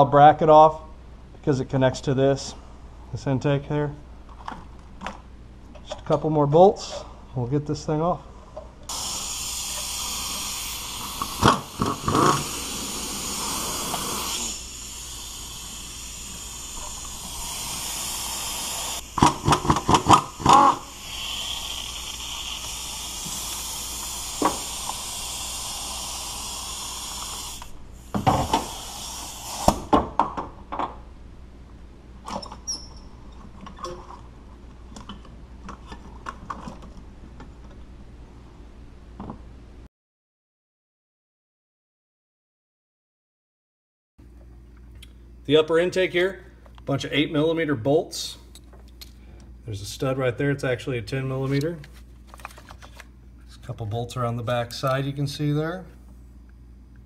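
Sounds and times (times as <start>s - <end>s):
air exhaust hissing: 8.9s - 30.0s.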